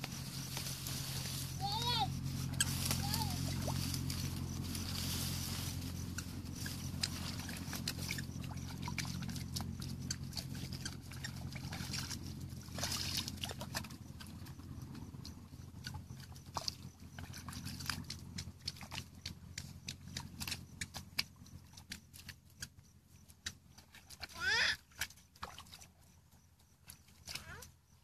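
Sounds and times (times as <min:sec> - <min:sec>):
low hum: 0:00.0 - 0:23.0
hands splashing in muddy water: 0:06.9 - 0:14.4.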